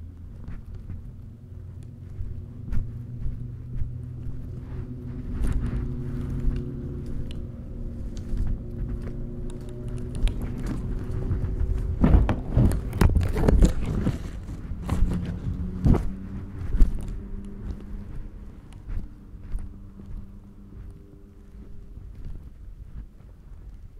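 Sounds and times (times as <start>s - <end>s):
motorcycle engine steady note: 0.0s - 22.8s
knocks and clatter: 8.2s - 17.9s.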